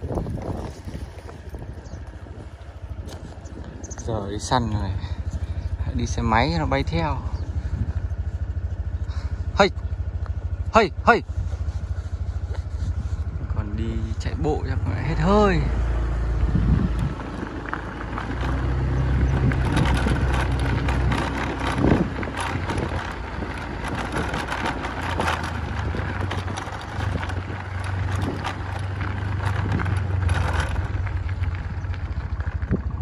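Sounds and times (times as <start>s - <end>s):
motorbike engine running: 0.0s - 33.0s
knocks and rattles: 17.7s - 31.6s.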